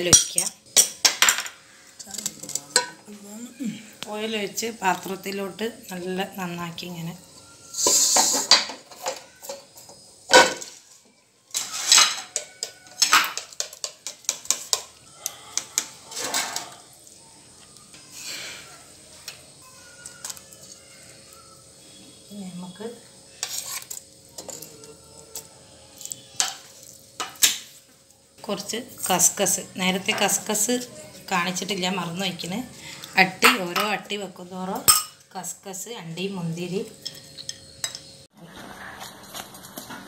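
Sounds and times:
kitchen utensils clinking: 0.0 - 3.1, 7.8 - 10.9, 11.5 - 16.8, 28.5 - 35.8, 36.6 - 38.2.

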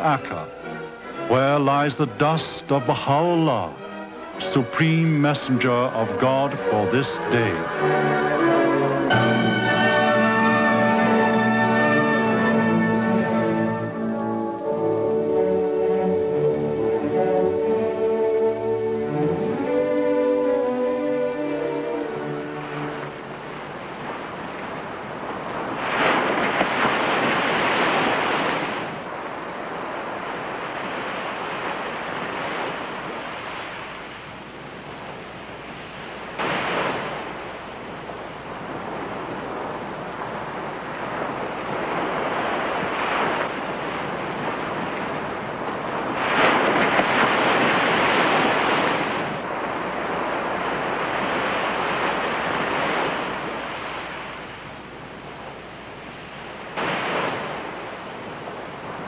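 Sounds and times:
small waves breaking on beach: 0.0 - 59.0.

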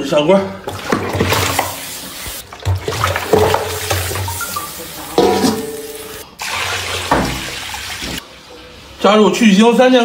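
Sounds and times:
water sloshing: 0.6 - 5.8
water pouring and splashing: 0.7 - 8.2.

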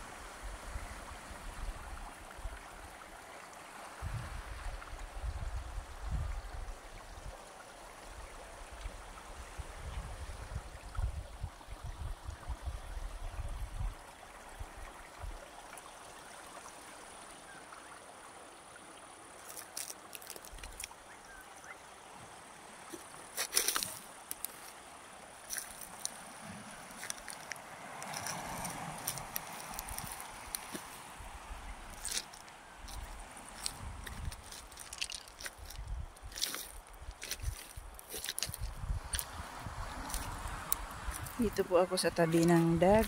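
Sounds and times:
wind rumbling on microphone: 0.0 - 3.0, 4.0 - 7.4, 8.0 - 15.4, 25.5 - 43.0
water washing on stones: 19.2 - 21.2, 22.4 - 43.0
sharp clicks and crunches: 19.5 - 20.9, 22.9 - 24.7, 33.6 - 39.3.

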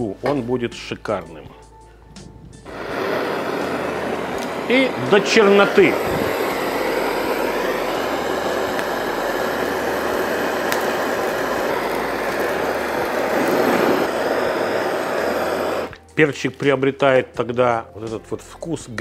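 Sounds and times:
gas torch hissing: 2.6 - 16.2.

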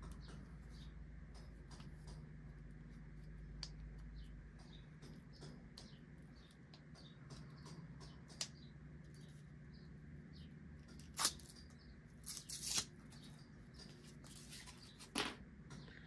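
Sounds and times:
plastic film peeling: 11.0 - 11.6, 12.2 - 13.2.

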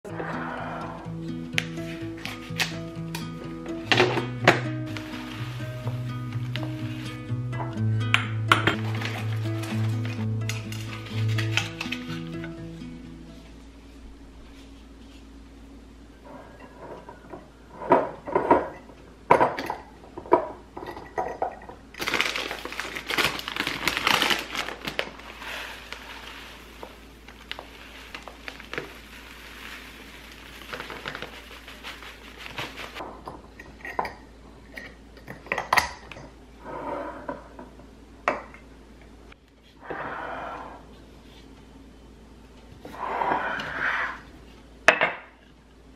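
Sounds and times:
rolled oats rustling: 4.8 - 7.4, 8.8 - 12.5, 22.1 - 33.0.

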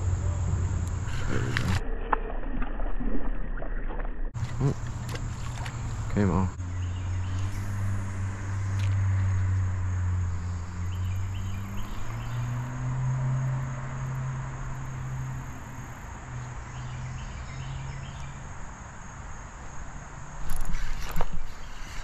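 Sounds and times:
low hum: 0.0 - 16.1
insects chirring: 4.4 - 22.0.

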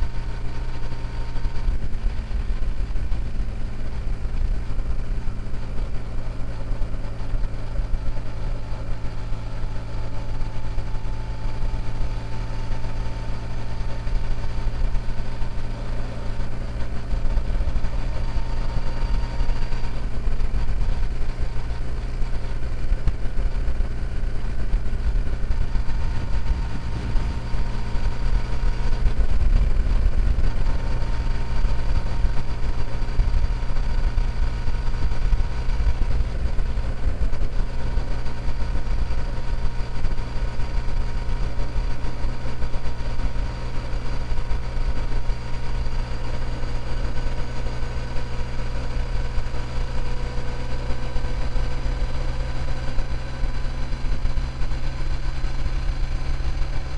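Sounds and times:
motorcycle engine cruising: 0.0 - 56.9
wind rush over microphone: 22.4 - 38.6.

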